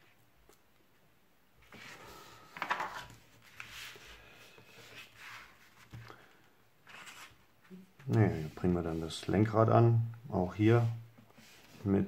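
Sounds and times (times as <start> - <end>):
paper pages turning and rustling: 1.6 - 7.4
soft rubs on paper: 3.3 - 6.1, 8.0 - 9.3, 10.6 - 12.0.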